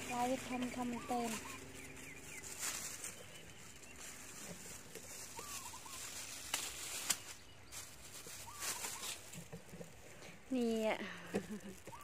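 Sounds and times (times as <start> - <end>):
bird chirping: 0.0 - 6.4, 7.1 - 9.4
rustling leaves and stems: 0.0 - 12.0.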